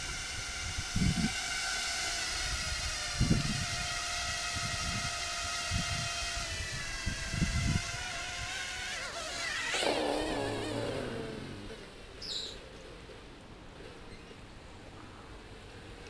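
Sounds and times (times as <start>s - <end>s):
drone motors whining: 0.0s - 12.5s.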